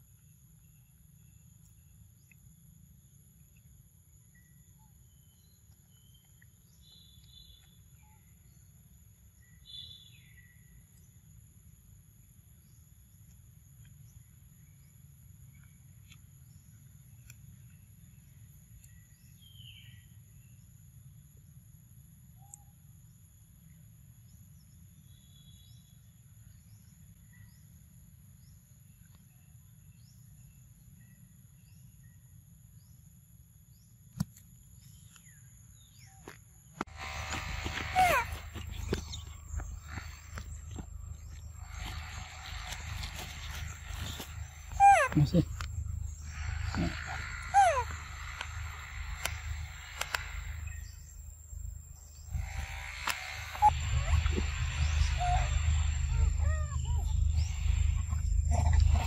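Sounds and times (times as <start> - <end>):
bird chirps: 34.8 - 59.0
high-pitched insect drone: 36.9 - 59.0
low rumble: 53.5 - 59.0.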